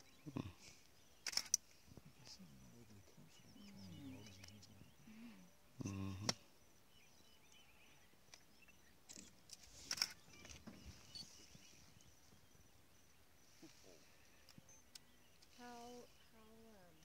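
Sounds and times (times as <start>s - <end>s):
faint high chirps: 0.0s - 17.0s
sharp clicks: 1.2s - 1.6s, 8.3s - 10.7s.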